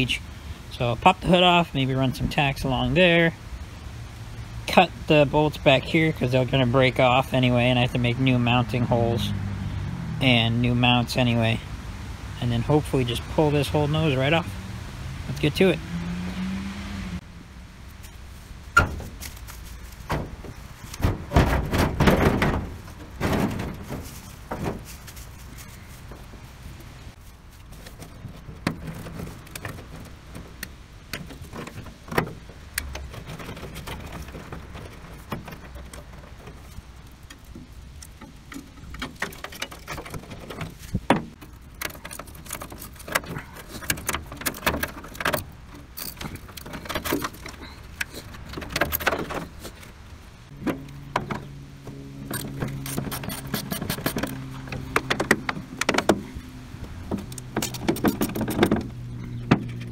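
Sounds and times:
side cutters snipping wiring: 52.3s - 56.0s.

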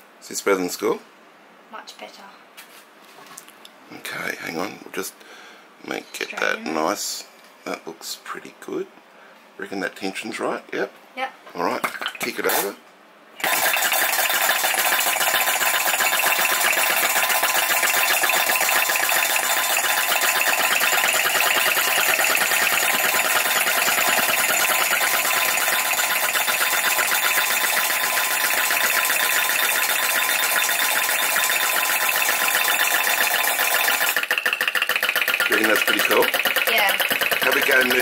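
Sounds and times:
model engine clattering: 13.4s - 38.0s.

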